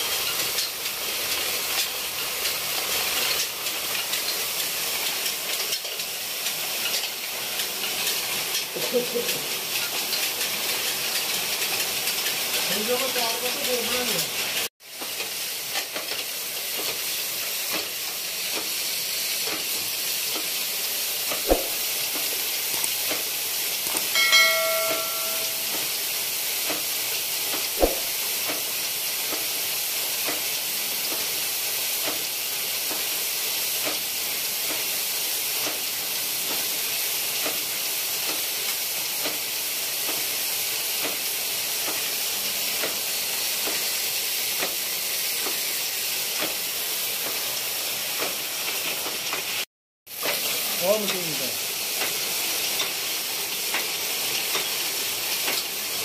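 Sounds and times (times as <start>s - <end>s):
brief high pitched tone: 24.2s - 25.8s.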